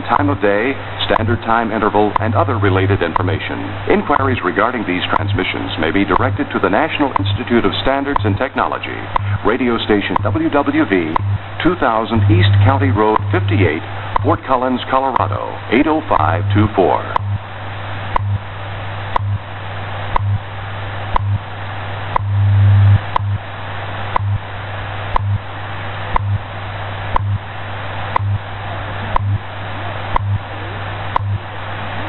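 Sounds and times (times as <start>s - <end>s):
low pulsing hum: 0.0s - 32.0s
static hiss: 0.0s - 32.0s
radio time signal ticks: 1.0s - 17.4s, 18.1s - 18.4s, 19.1s - 19.4s, 20.1s - 20.4s, 21.1s - 21.4s, 22.1s - 22.4s, 23.0s - 23.4s, 24.1s - 24.4s, 25.1s - 25.4s, 26.1s - 26.4s, 27.1s - 27.4s, 28.1s - 28.4s, 29.1s - 29.4s, 30.1s - 30.4s, 31.1s - 31.4s.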